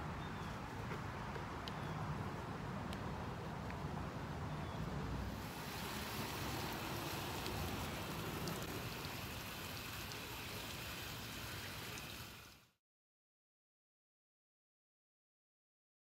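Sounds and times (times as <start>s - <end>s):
hose nozzle spraying water: 5.4s - 12.7s.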